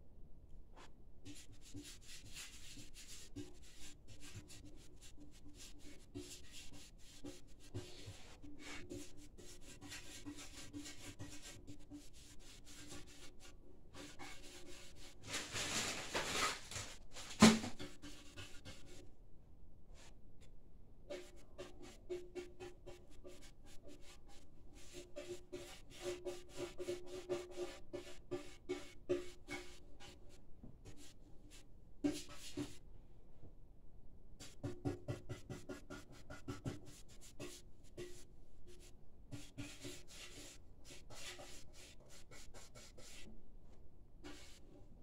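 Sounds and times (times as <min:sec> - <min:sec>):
paintbrush scrubbing metal: 0:01.2 - 0:15.2, 0:21.1 - 0:32.8, 0:34.4 - 0:43.3, 0:44.2 - 0:44.8.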